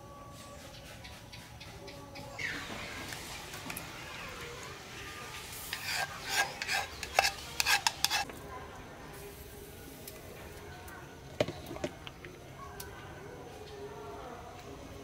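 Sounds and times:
ladle scraping and clinking bowl: 0:05.6 - 0:08.3.

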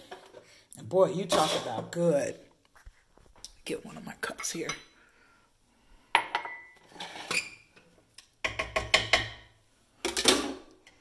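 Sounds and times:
cup clinking and knocking: 0:06.2 - 0:06.8, 0:08.4 - 0:09.5.

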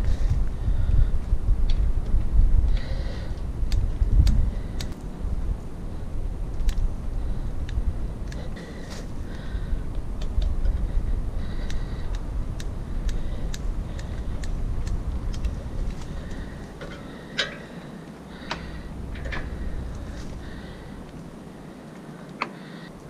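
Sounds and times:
low rumble: 0:00.0 - 0:22.2
metal clicks and ticks: 0:03.7 - 0:05.1, 0:06.5 - 0:06.9, 0:11.6 - 0:20.3.

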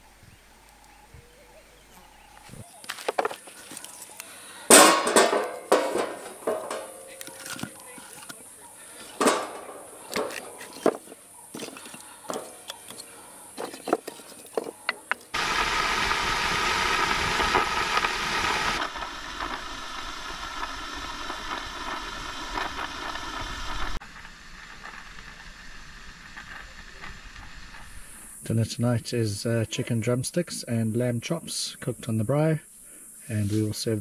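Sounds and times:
sharp knocks and clatters: 0:04.7 - 0:08.3, 0:09.1 - 0:13.0
gas torch hissing: 0:15.3 - 0:24.0.

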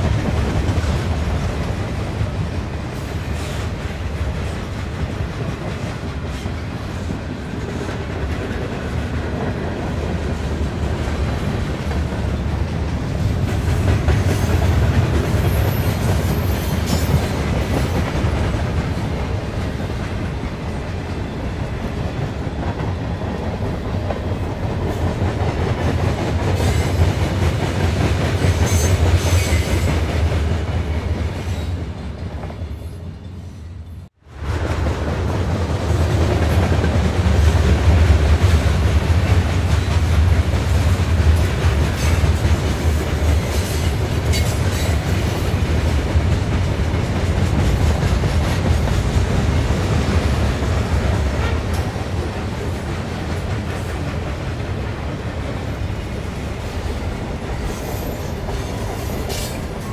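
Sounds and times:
steam locomotives working: 0:00.0 - 0:59.9
rail clatter: 0:34.4 - 0:59.9.

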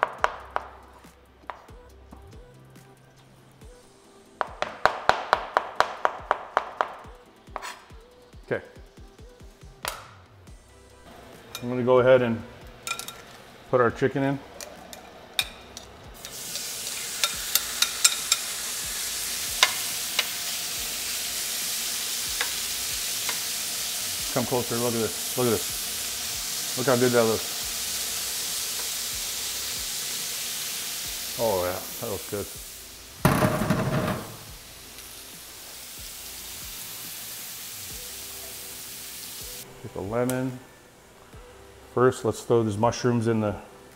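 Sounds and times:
utensil scraping a pan: 0:07.6 - 0:07.9
chicken sizzling in a skillet: 0:11.1 - 0:41.4.

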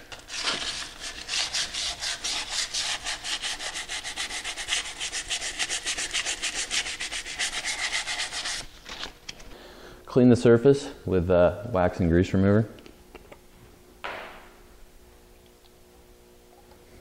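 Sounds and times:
sandpaper rubbing on metal: 0:00.3 - 0:08.7.

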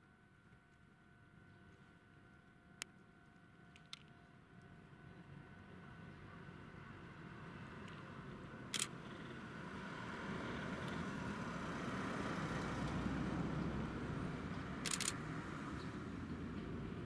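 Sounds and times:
camera shutter clicks: 0:08.7 - 0:09.0, 0:14.8 - 0:15.2
passenger train rumbling past: 0:11.3 - 0:17.0.

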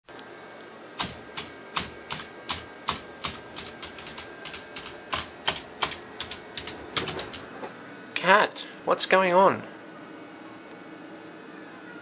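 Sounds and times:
faint steady hum: 0:00.1 - 0:12.0
sharp clicking taps: 0:01.0 - 0:07.4.

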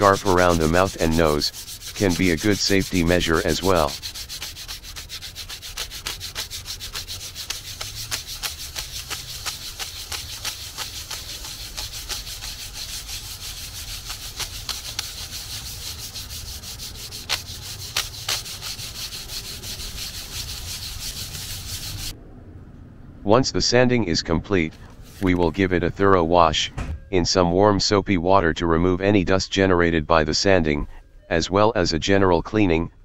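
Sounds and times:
sandpaper rasping on plastic: 0:00.0 - 0:22.1.

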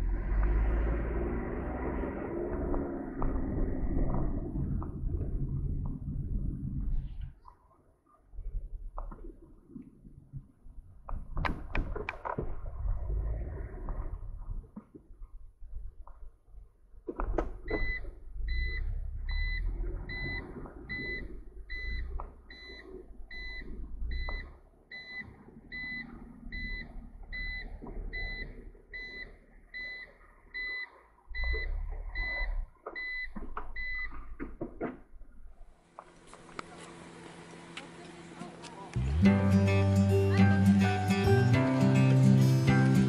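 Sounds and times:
low rumble: 0:00.0 - 0:07.4, 0:08.3 - 0:24.6
electronic beeper beeping: 0:17.7 - 0:30.8.

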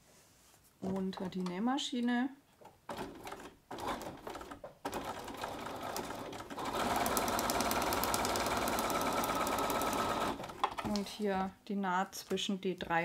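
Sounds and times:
sewing machine stitching: 0:02.9 - 0:11.0.

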